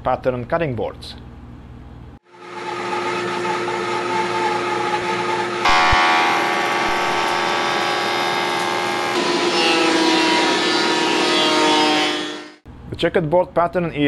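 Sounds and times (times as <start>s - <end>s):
bandsaw whining: 2.2s - 12.6s
jointer cutting board: 2.4s - 12.6s.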